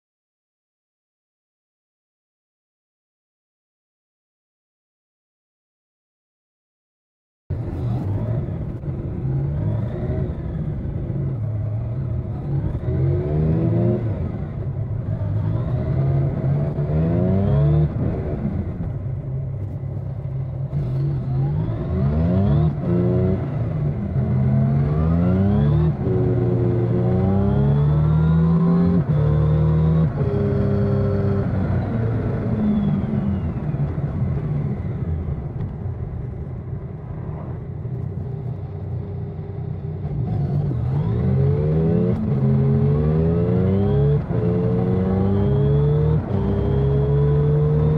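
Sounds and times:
motorcycle engine revving: 7.5 - 47.9.

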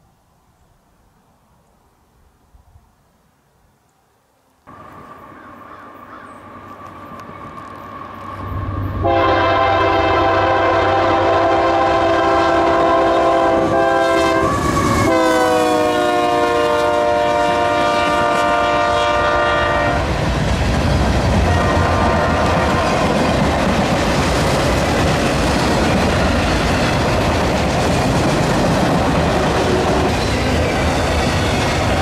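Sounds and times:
train rumble: 4.7 - 32.0
locomotive air horn: 8.6 - 20.1, 21.4 - 22.8, 29.4 - 30.2.

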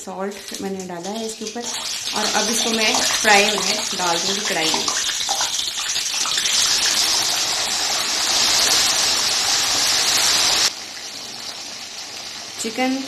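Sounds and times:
chicken sizzling in hot oil: 0.2 - 13.0.

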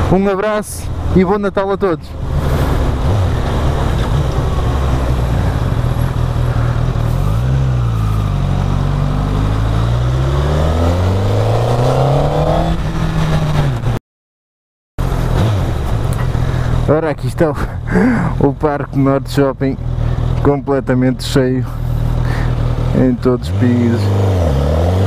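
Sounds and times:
motorcycle engine revving: 2.2 - 14.0, 15.0 - 16.9, 21.7 - 25.0.

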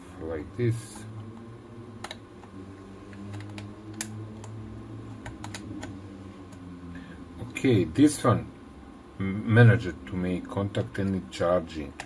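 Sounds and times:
low steady hum: 0.0 - 12.0
plastic clicks and taps: 3.2 - 4.6.

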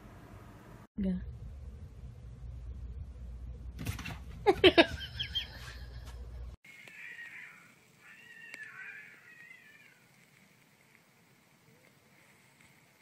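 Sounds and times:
low rumble: 0.0 - 4.5
cats fighting and yowling: 6.7 - 10.3.

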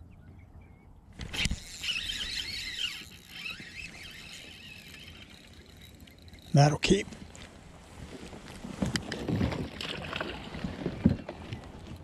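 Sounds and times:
fishing reel drag squealing: 1.2 - 6.9.

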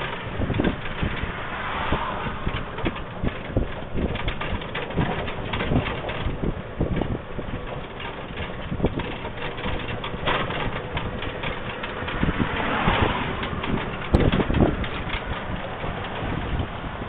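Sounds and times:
golf cart motor rumbling: 0.0 - 17.0
low thumps: 0.0 - 17.0.

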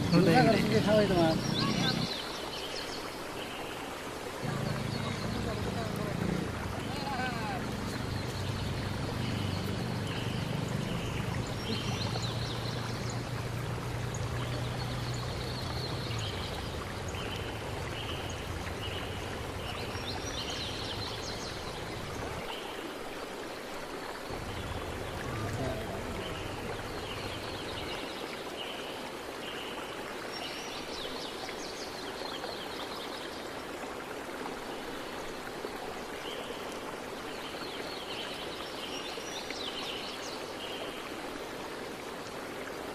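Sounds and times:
steady outdoor hiss: 0.0 - 42.9
low hum: 24.3 - 27.8.

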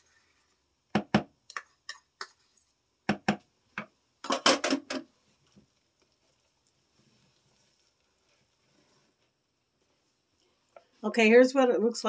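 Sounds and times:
wooden spoon scraping: 5.1 - 11.0.

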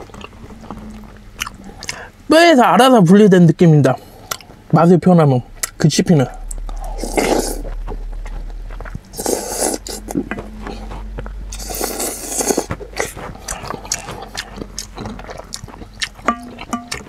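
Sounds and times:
wet chewing: 0.0 - 2.3, 4.0 - 4.7, 5.5 - 17.0
person slurping soup: 6.7 - 7.8, 9.1 - 10.9, 11.5 - 16.8.

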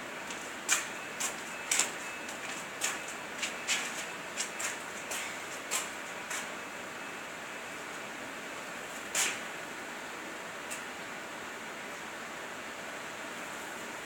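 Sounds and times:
hard-soled footsteps on concrete: 0.2 - 6.6.

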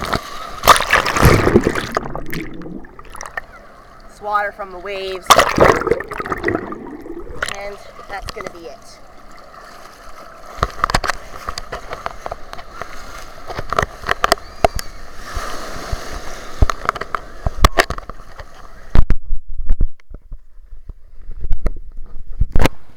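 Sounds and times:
sea water sloshing and splashing: 0.0 - 14.2
muffled underwater thumps: 0.6 - 3.5, 5.3 - 8.5
water knocking on microphone: 0.6 - 3.5, 5.2 - 8.5.

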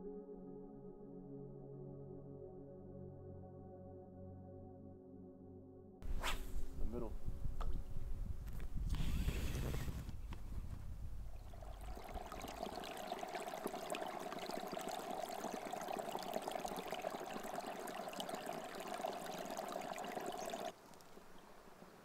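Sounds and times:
stream trickling: 11.3 - 22.0.

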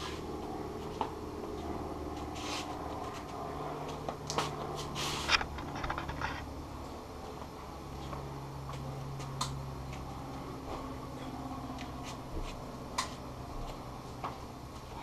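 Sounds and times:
scuffs and knocks of movement: 0.0 - 6.6
steady low hum: 0.0 - 15.0.

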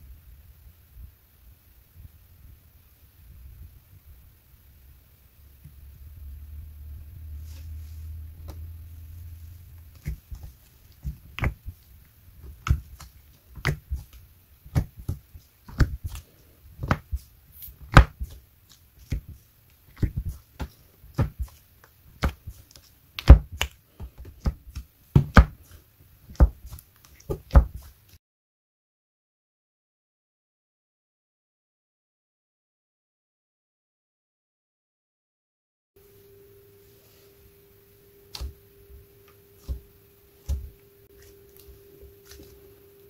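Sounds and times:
slime squishing with wet pops: 9.8 - 28.2.

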